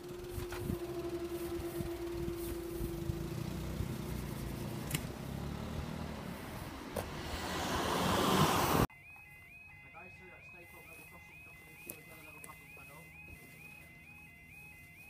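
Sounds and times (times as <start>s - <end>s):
steady hum: 0.0s - 6.9s
car driving close past: 0.0s - 8.9s
cars driving over crossing: 0.0s - 8.9s.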